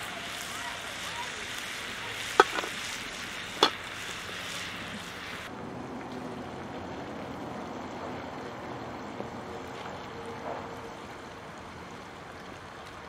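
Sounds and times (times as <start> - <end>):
fish sizzling in a pan: 0.0 - 5.5
utensil clicking against pan: 2.4 - 2.8.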